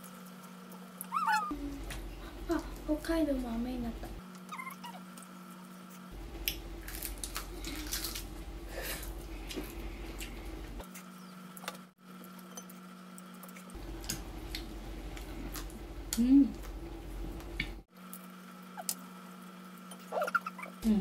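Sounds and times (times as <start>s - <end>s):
crispy chicken crackling: 6.1s - 19.6s.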